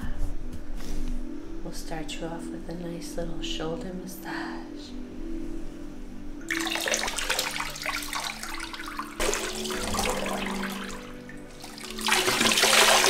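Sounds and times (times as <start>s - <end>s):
water pouring and splashing: 6.4s - 13.0s.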